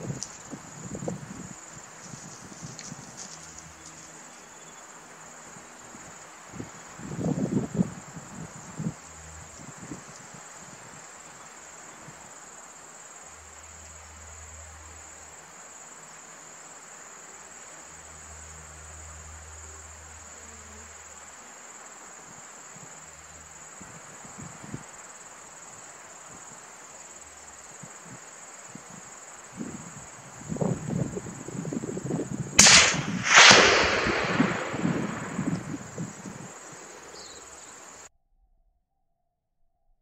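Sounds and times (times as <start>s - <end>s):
insects chorus: 0.0s - 38.1s
low rumble: 32.6s - 37.1s.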